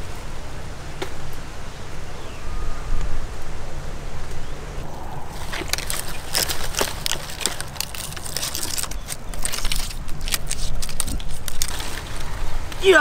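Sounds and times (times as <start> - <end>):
steady low rumble: 0.0 - 9.0
rustling: 4.5 - 13.0
firewood sticks knocking and snapping: 5.4 - 12.2.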